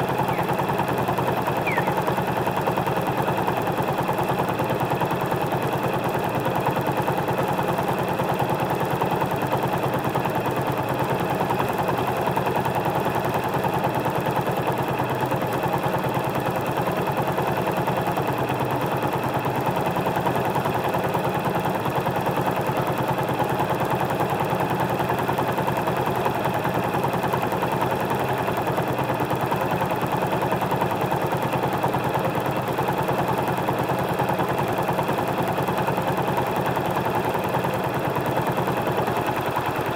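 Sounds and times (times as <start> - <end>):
motorcycle engine idling: 0.1 - 2.2.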